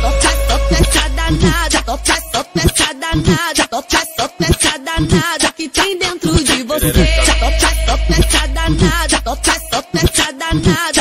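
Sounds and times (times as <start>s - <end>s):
percussion hits: 0.0s - 1.8s
deep held bass note: 0.0s - 2.2s, 6.9s - 9.4s.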